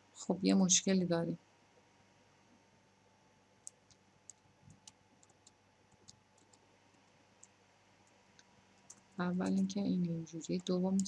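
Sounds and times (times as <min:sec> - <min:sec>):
computer keys clicking: 0:03.6 - 0:06.6, 0:07.4 - 0:11.0.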